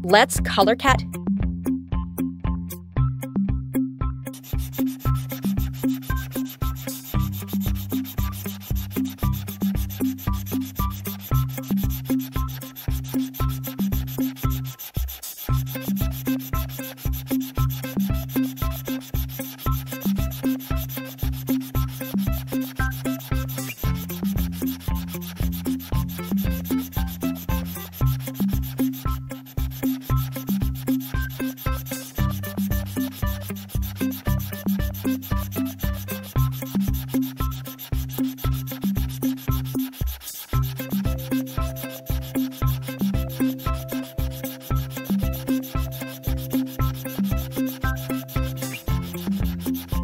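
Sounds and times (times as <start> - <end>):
background music with steady beat: 0.0 - 50.0
scratchy rubbing percussion: 4.3 - 50.0.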